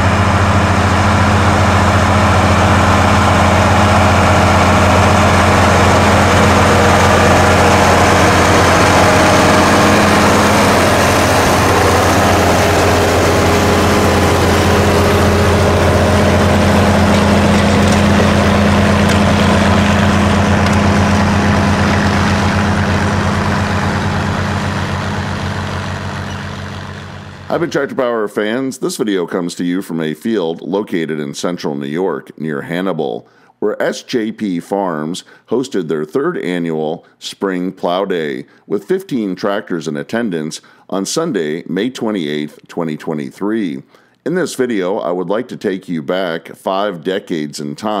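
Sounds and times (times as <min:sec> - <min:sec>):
tractor diesel engine under load: 0:00.0 - 0:28.1.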